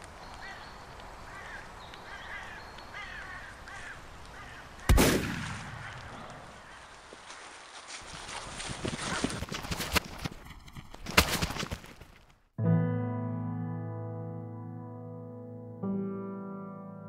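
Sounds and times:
birds calling: 0.2 - 7.6
gunshot echoing: 4.9 - 6.2.

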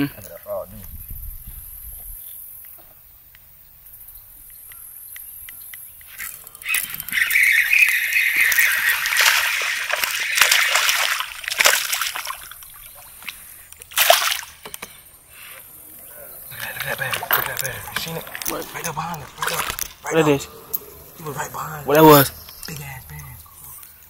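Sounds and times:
fish splashing in water: 6.6 - 14.8.

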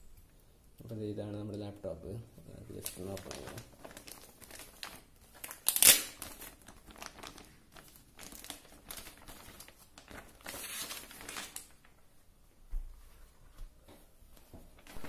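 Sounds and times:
plastic bag crinkling: 2.5 - 12.0, 14.8 - 15.0.

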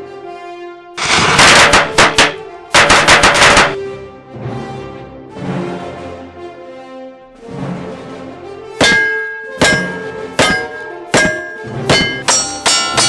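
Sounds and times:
background music: 0.0 - 13.0
gunshots: 1.0 - 3.8
steel target clanging: 1.0 - 3.8, 8.8 - 13.0.

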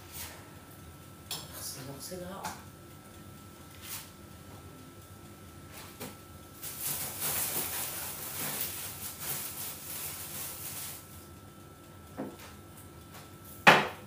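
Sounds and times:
plastic bag rustling: 6.6 - 11.2.

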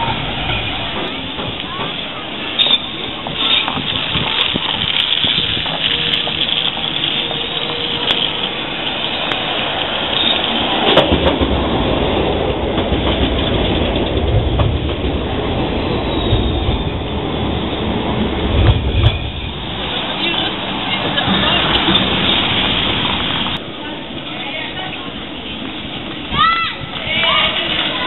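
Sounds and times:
street noise: 0.0 - 28.0
tram wheels rumbling on rails: 0.0 - 28.0.

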